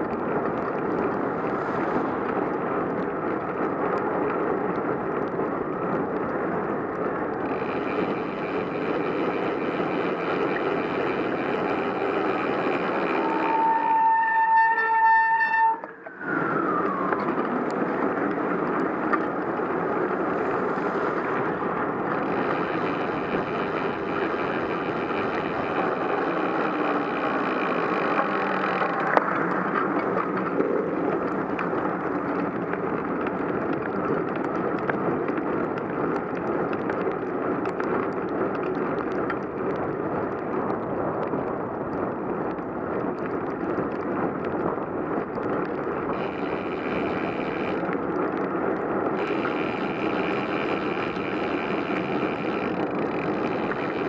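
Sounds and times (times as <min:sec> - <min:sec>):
wind: 0:00.0 - 0:54.0
bicycle tyres hissing on wet road: 0:00.1 - 0:14.4, 0:17.8 - 0:54.0
high whine: 0:07.4 - 0:17.7, 0:21.2 - 0:30.2, 0:46.1 - 0:48.1, 0:49.1 - 0:54.0.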